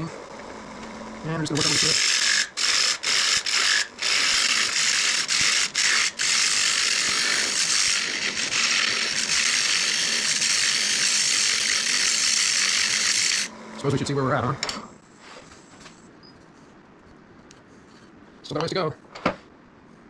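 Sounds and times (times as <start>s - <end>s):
chisel scraping wood on lathe: 1.4s - 13.5s.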